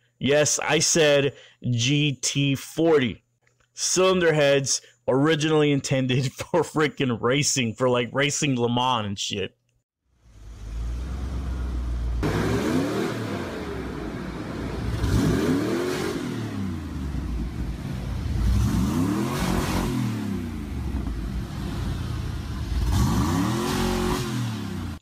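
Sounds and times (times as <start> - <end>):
car engine idling and revving: 10.1 - 25.0.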